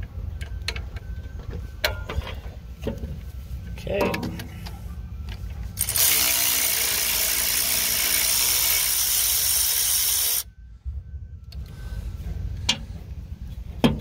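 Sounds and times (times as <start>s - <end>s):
cordless ratchet running: 5.8s - 10.5s.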